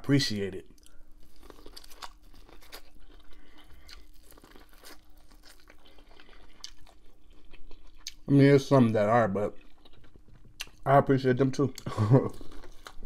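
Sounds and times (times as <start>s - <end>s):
corn on the cob being chewed: 0.8s - 8.3s.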